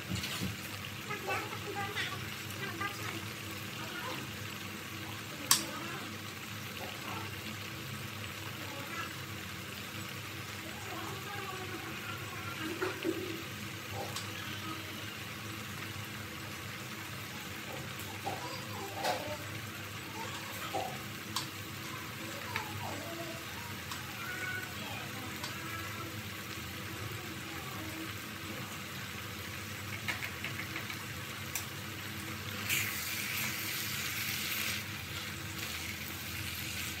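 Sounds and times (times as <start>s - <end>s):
syrup bubbling in pot: 0.0s - 37.0s.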